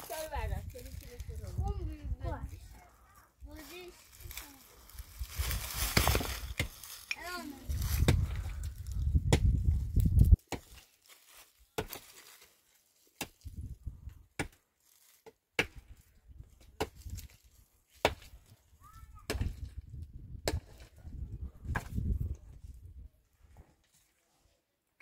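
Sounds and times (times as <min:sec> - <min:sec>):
pickaxe striking stony ground: 0:05.5 - 0:07.2, 0:09.1 - 0:09.7, 0:10.5 - 0:10.8, 0:11.8 - 0:12.1, 0:14.4 - 0:14.6, 0:15.6 - 0:16.0, 0:16.6 - 0:17.3, 0:18.0 - 0:18.4, 0:19.3 - 0:19.8, 0:20.4 - 0:20.9, 0:21.7 - 0:22.1.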